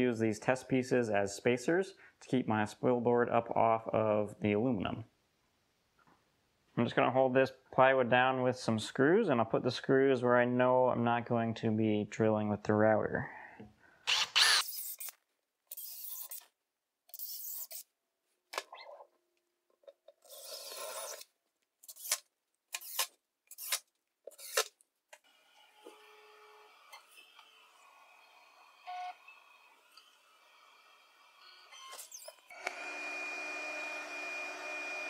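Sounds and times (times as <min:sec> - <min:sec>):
cordless drill driving screws: 0:14.1 - 0:16.5, 0:20.2 - 0:24.7, 0:25.3 - 0:35.0
router spindle whine: 0:25.4 - 0:35.0.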